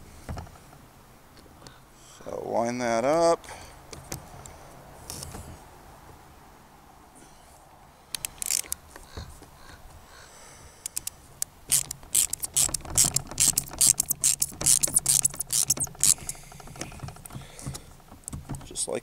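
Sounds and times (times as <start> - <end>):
ratcheting hand tool clicking: 8.1 - 8.8, 10.9 - 18.8.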